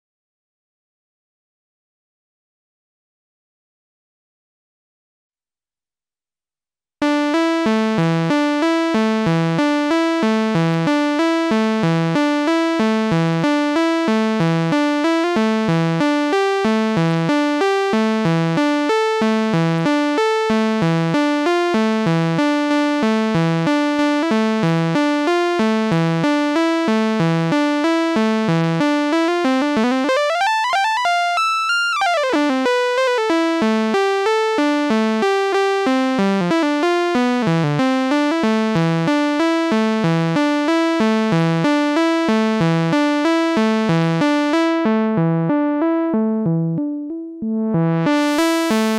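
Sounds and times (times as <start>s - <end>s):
synthesizer polyrhythmic sequence: 45.5s - 48.9s.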